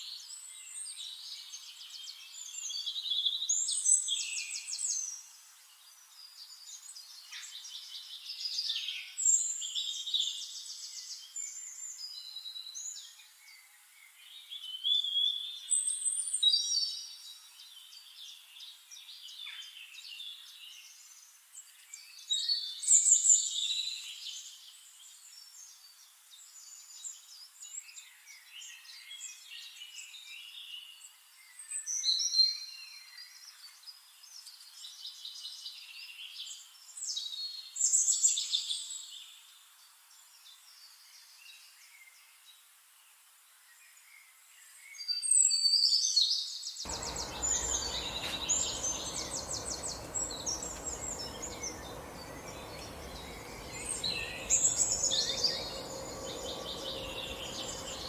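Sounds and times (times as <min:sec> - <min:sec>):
birds chirping and trilling: 0:46.9 - 0:58.0
steady background rush: 0:46.9 - 0:58.0.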